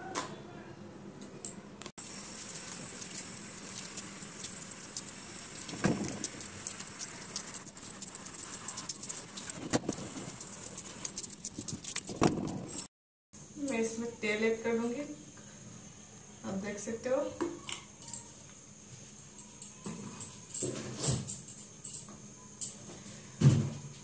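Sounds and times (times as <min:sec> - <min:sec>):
eggshell clicks and crackles: 0:02.0 - 0:12.9.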